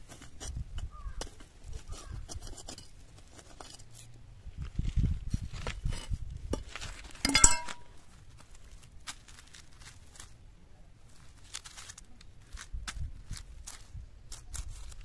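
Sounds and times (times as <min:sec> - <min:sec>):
faint rustles and ticks: 0:00.0 - 0:10.4
metal ladle clinking on concrete: 0:07.2 - 0:07.9.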